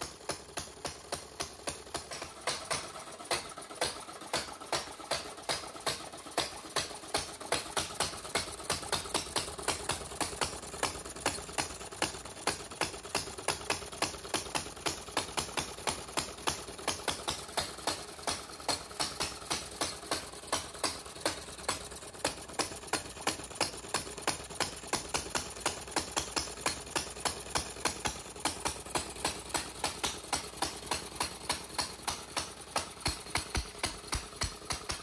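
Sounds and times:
model engine clicking: 0.0 - 35.0.

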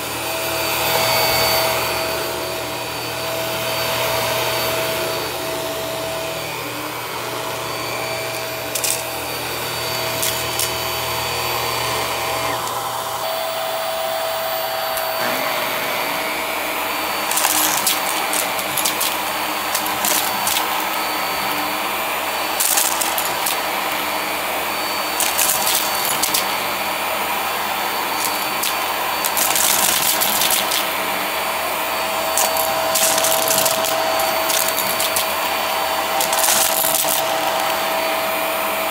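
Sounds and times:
vacuum cleaner running: 0.0 - 38.9
confetti rattling in vacuum nozzle: 8.7 - 9.2, 10.1 - 10.8, 17.2 - 21.7, 22.4 - 24.0, 25.1 - 26.6, 28.1 - 31.0, 32.2 - 37.9.

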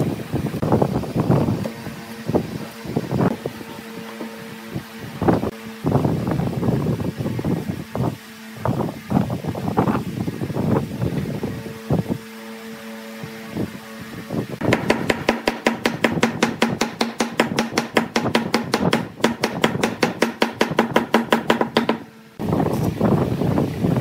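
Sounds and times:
steady hum: 0.0 - 24.0
mallet hammering wood: 14.6 - 22.1.

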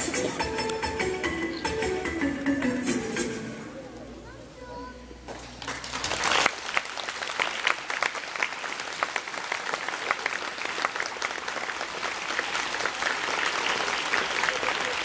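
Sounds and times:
crowd applauding: 5.4 - 15.0.

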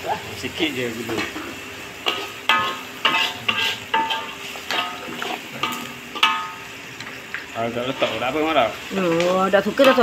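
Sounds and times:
utensil stirring thick curry: 2.0 - 6.4
utensil clinking against pot: 2.0 - 7.2.

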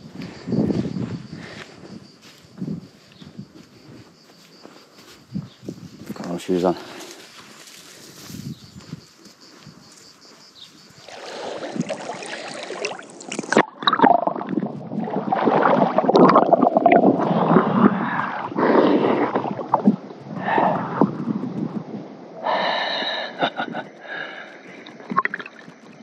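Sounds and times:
water splashing and sloshing: 10.7 - 20.2, 24.7 - 26.0.

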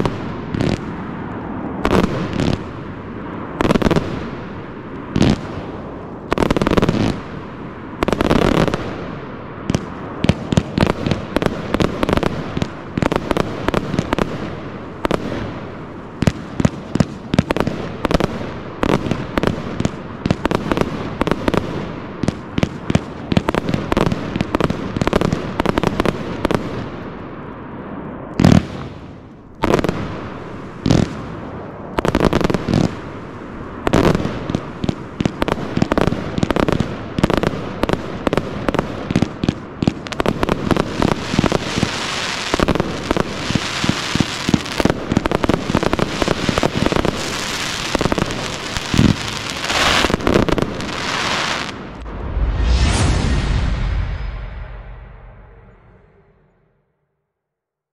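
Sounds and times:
firework shots launching and bursting: 33.8 - 54.3
sharp firework bangs: 33.8 - 55.6.

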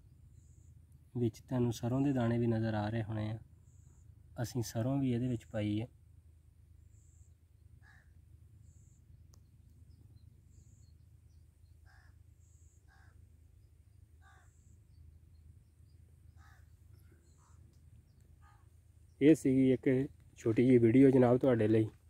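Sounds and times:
faint bird calls: 3.1 - 4.2, 6.8 - 22.0.

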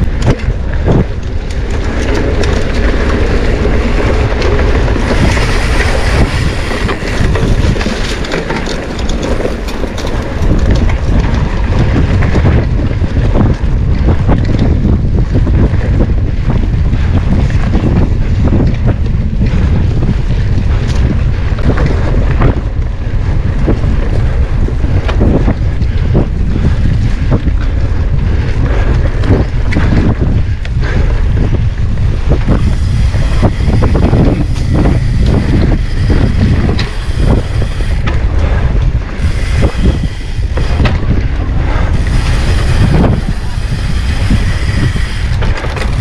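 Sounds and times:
bike knocks and rattles: 0.0 - 46.0
wind buffeting microphone: 0.0 - 46.0.

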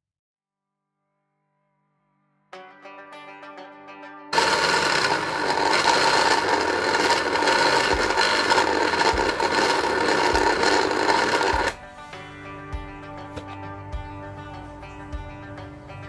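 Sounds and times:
electric food chopper motor whining: 4.4 - 11.8.

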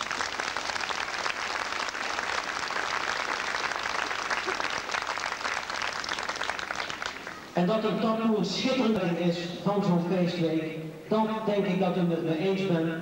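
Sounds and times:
crowd applauding: 0.0 - 7.6.

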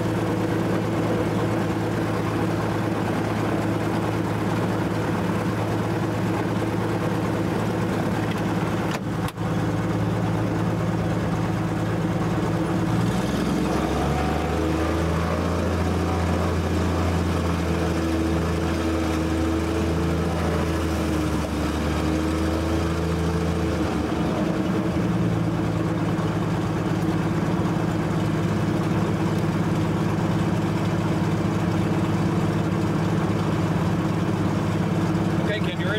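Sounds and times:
propeller plane engine idling: 0.0 - 35.9.

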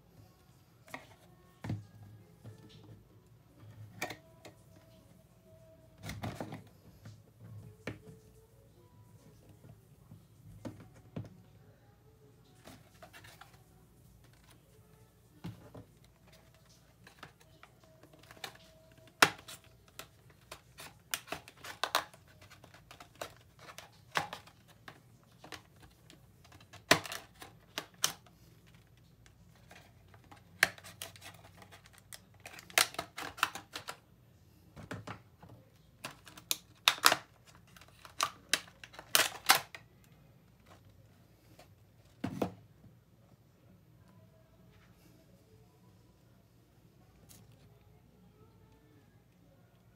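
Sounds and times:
cardboard box and plastic tray crackling: 15.4 - 28.9, 36.0 - 39.8.

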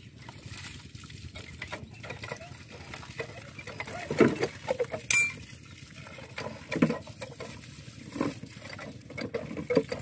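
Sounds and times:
metallic clinks and knocks: 5.1 - 5.4.

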